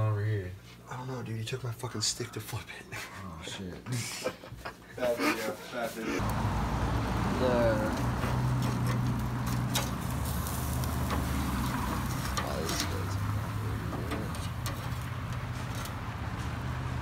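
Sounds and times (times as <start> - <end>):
steak sizzling on grill: 6.5 - 15.2.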